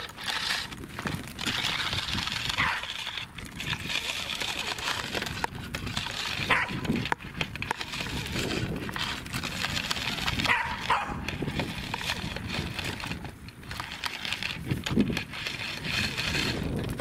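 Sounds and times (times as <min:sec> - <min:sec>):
dog yelping: 0:06.5 - 0:06.8, 0:10.5 - 0:11.2.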